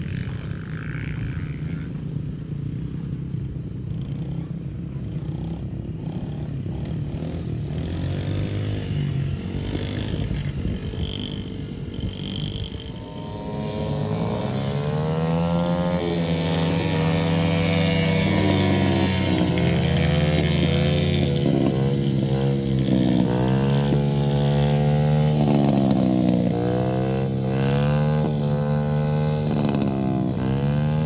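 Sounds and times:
dirt bike engine revving: 5.2 - 31.0
second small bike engine: 7.9 - 31.0.

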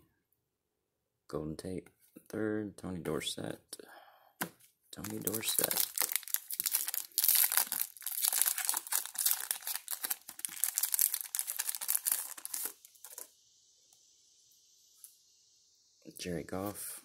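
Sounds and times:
foil wrapper crinkling and tearing: 5.0 - 13.3.

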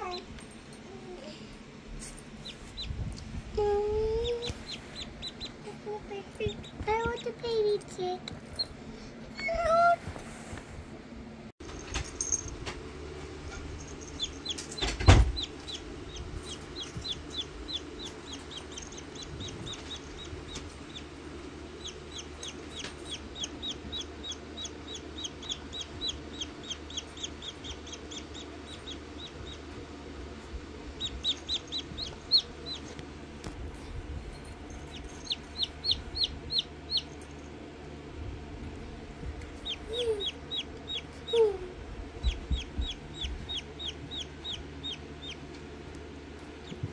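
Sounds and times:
chick peeping: 2.4 - 3.0, 4.1 - 5.6, 21.8 - 29.6, 31.0 - 33.0, 34.9 - 37.2, 39.6 - 41.5, 42.2 - 45.4.

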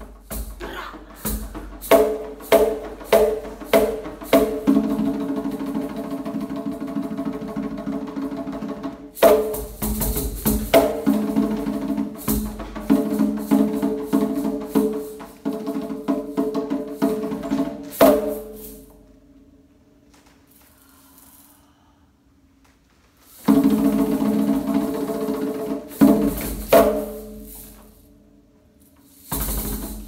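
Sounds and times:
sharp percussive hits: 0.2 - 5.0.

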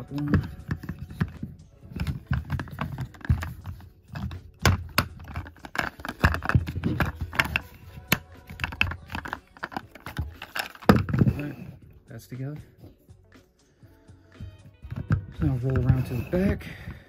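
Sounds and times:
plastic toy parts clicking: 0.2 - 11.3.

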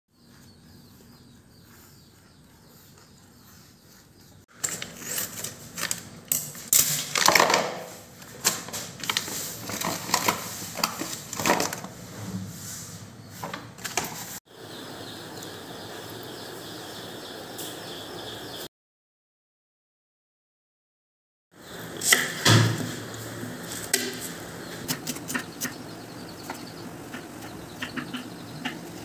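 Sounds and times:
frozen food block handled in plastic bowl: 8.4 - 11.9.

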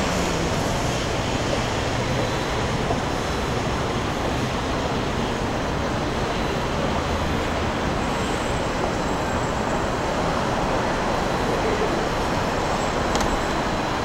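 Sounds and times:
road traffic rumble: 0.0 - 14.0
trains rumbling: 0.0 - 14.0.

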